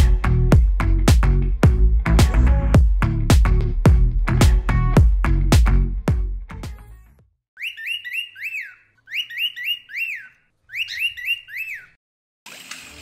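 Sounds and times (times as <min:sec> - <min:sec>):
high whistled chirps: 0:07.6 - 0:12.0
water pouring and trickling: 0:12.5 - 0:13.0.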